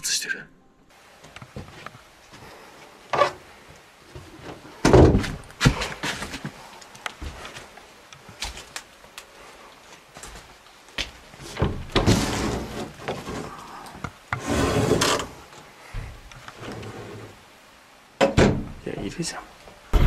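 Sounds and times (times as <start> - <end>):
door rubbing and scraping: 11.4 - 13.6, 14.3 - 17.4
wooden door knocks and clicks: 18.2 - 18.8.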